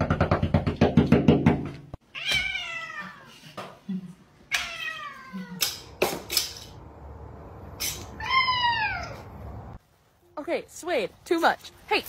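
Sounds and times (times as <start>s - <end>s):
cat meowing: 2.1s - 3.3s, 4.5s - 5.7s, 8.2s - 9.3s.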